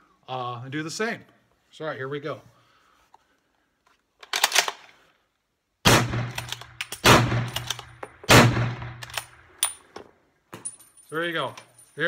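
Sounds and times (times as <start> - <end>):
loud rifle shots: 5.8 - 9.4
rifle bolt clicking: 6.3 - 8.1, 9.0 - 9.8.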